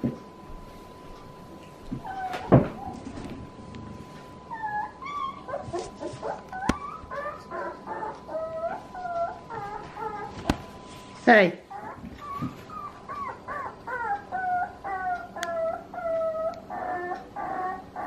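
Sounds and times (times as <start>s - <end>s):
puppies whimpering and yipping: 1.9s - 3.4s, 4.2s - 10.5s, 11.7s - 18.0s.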